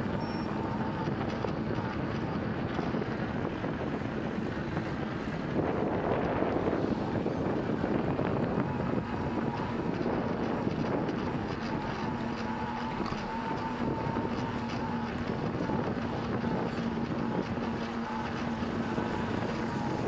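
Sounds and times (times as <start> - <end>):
faint high whine: 0.0 - 2.4
bicycle tyres on road: 0.0 - 20.0
steady low hum: 0.0 - 20.0
wind on microphone: 0.0 - 20.0.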